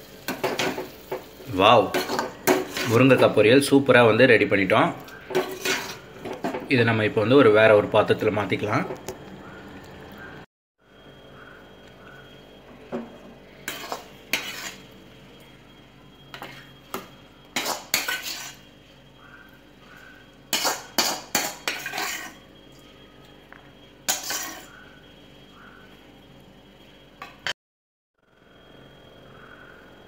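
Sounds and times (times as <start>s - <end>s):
ladle scraping and clattering on pot: 1.9s - 3.1s, 5.3s - 6.7s, 13.7s - 14.8s, 17.6s - 18.6s, 20.5s - 22.4s, 24.1s - 24.7s.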